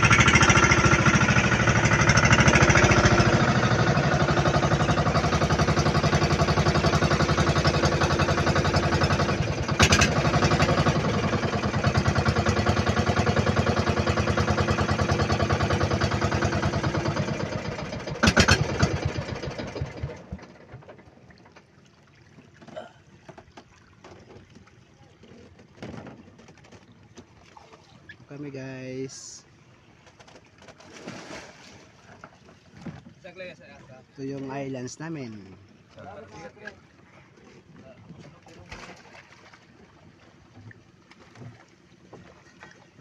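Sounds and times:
boat engine chugging: 0:00.0 - 0:30.7.

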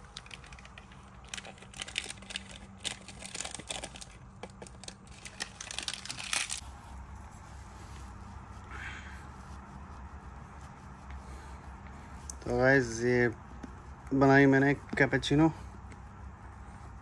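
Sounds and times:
powder crackles and light taps: 0:00.0 - 0:06.6, 0:11.8 - 0:16.6
foil sachet crinkling: 0:00.0 - 0:06.7.

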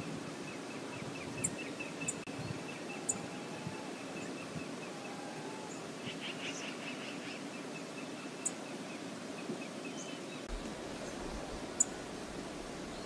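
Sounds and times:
faint bird chirps: 0:00.5 - 0:08.8
river water rushing: 0:02.7 - 0:13.0.

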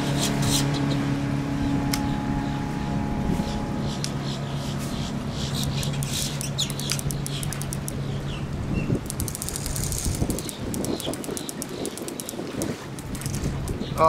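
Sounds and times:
birds chirping: 0:00.0 - 0:14.0
distant boat engine hum: 0:00.0 - 0:14.0
fast clicks: 0:09.0 - 0:13.4.

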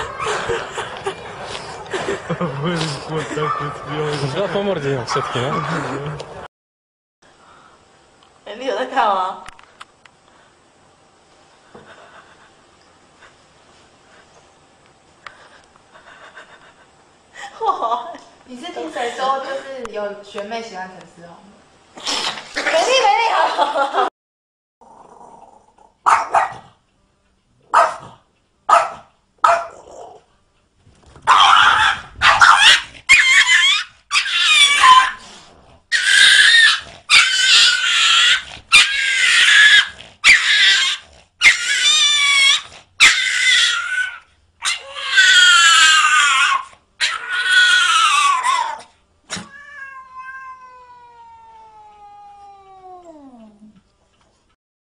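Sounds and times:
dog yapping: 0:26.0 - 0:26.7, 0:27.7 - 0:28.1, 0:28.7 - 0:29.9, 0:31.2 - 0:35.2, 0:35.9 - 0:50.5
cat yowling: 0:31.3 - 0:35.2, 0:35.9 - 0:53.6.

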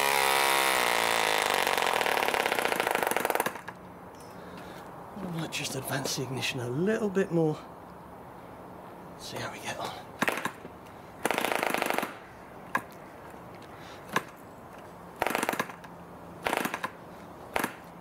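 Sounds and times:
model engine firing in bursts: 0:00.0 - 0:03.7, 0:11.2 - 0:12.2, 0:15.2 - 0:15.8, 0:16.4 - 0:17.8.

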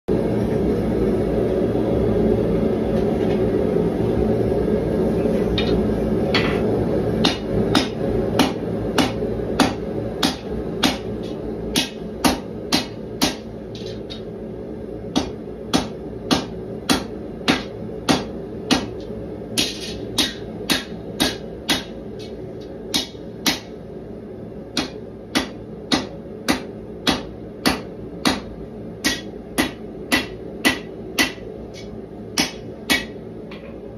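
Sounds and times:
hammer striking hot metal: 0:05.6 - 0:14.3, 0:15.1 - 0:23.8, 0:24.7 - 0:33.6.

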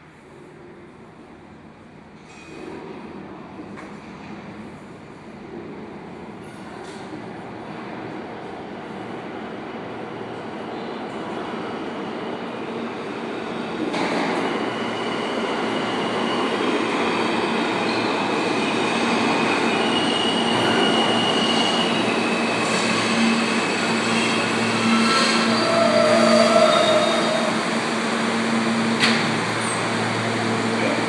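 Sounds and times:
subway train rumble: 0:00.0 - 0:31.0
wheel squeal: 0:19.6 - 0:27.6.

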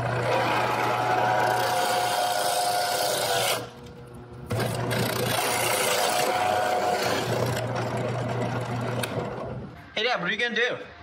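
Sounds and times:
drill press motor whining: 0:00.0 - 0:03.9, 0:04.5 - 0:09.7.

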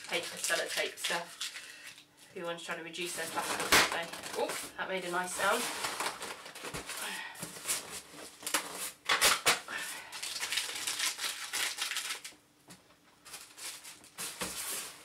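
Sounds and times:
cardboard packaging rustling: 0:00.0 - 0:02.0, 0:03.1 - 0:12.4, 0:13.1 - 0:15.0
packing tape tearing off cardboard: 0:03.2 - 0:04.7, 0:05.4 - 0:12.3, 0:13.2 - 0:15.0.

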